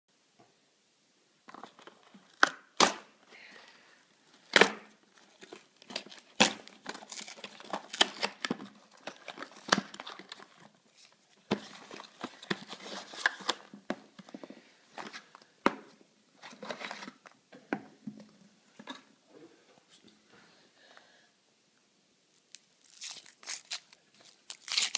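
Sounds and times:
foil rustling and crinkling: 0:22.5 - 0:24.9
cardboard carton tearing: 0:22.8 - 0:24.9.

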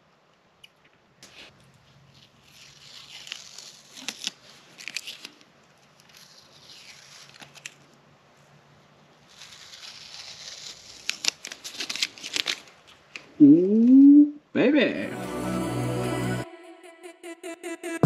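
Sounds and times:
masking tape peeling: 0:02.1 - 0:08.0, 0:09.2 - 0:13.3.

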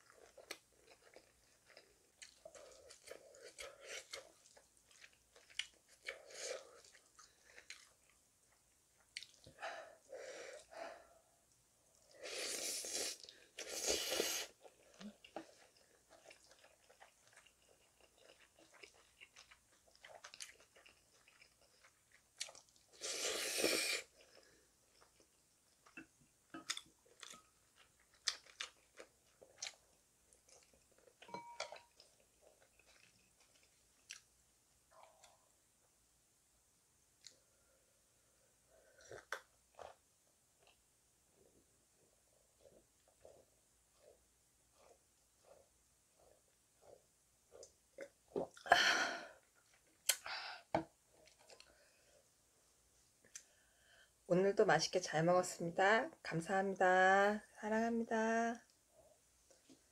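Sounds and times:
chewing and mouth clicks: 0:00.0 - 0:09.5, 0:14.6 - 0:23.0, 0:24.0 - 0:34.3, 0:38.9 - 0:40.0, 0:51.1 - 0:51.8
loud noodle slurps: 0:12.2 - 0:14.6, 0:23.0 - 0:24.1.

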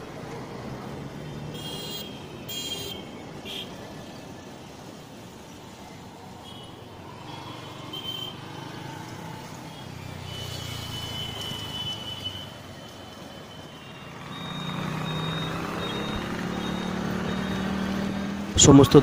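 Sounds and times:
street traffic: 0:00.0 - 0:19.0
nearby engine: 0:14.0 - 0:19.0.

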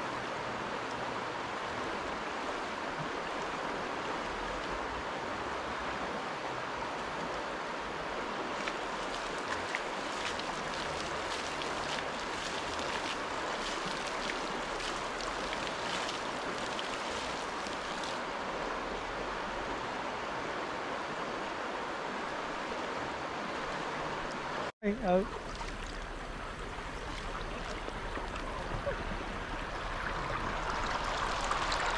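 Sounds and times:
water rushing over rocks: 0:00.8 - 0:31.9
small water splashes: 0:08.5 - 0:18.3, 0:24.9 - 0:31.9.

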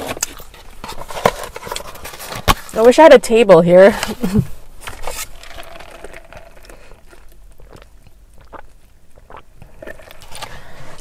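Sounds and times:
chewing and crunching: 0:00.0 - 0:02.2, 0:05.0 - 0:11.0.

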